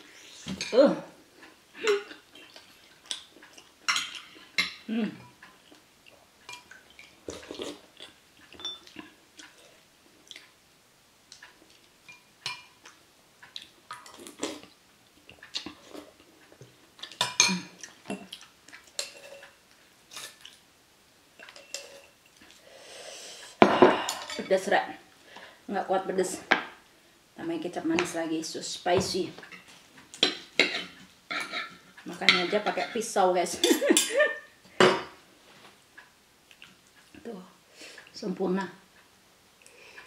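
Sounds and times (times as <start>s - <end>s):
utensils clinking on plates: 8.6s - 9.0s, 21.4s - 22.2s, 29.5s - 35.1s.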